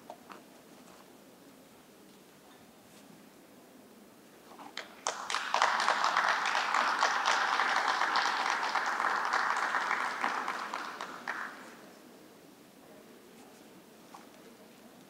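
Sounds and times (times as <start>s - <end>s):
audience applauding: 5.0s - 11.8s.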